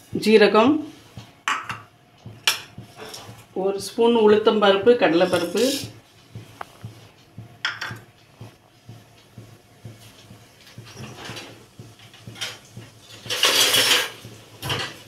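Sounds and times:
seeds crackling in hot oil: 0:04.7 - 0:15.0.

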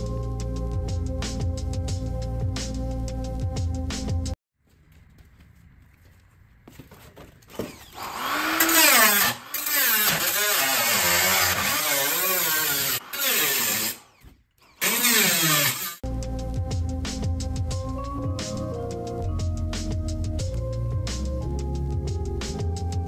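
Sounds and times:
angle grinder grinding metal: 0:07.6 - 0:16.0.

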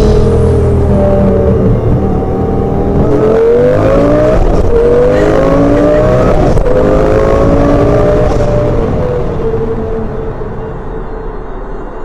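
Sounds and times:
car engine accelerating hard: 0:00.0 - 0:10.9.

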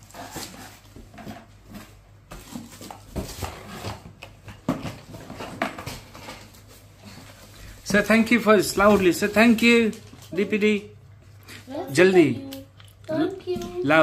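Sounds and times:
rummaging in cardboard box: 0:00.0 - 0:07.8.

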